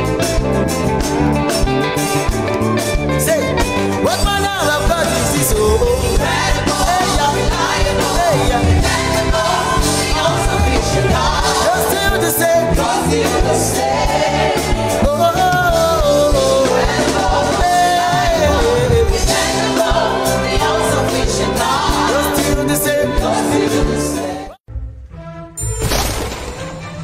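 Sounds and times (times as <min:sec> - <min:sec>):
band with electric guitar: 0:00.0 - 0:24.5
group of singers: 0:04.0 - 0:24.6.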